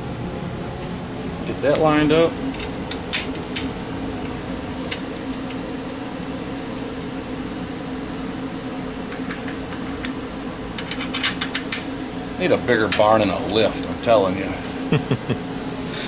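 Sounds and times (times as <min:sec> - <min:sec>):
fan humming: 0:00.0 - 0:16.0.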